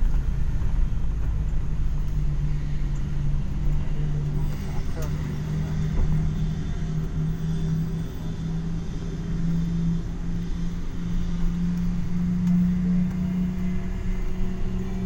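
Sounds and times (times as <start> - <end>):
vehicle engine hum from cabin: 0.0 - 15.0.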